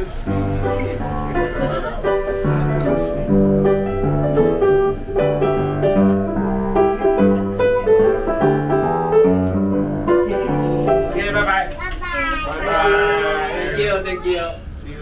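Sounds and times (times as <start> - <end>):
piano melody: 0.0 - 11.8.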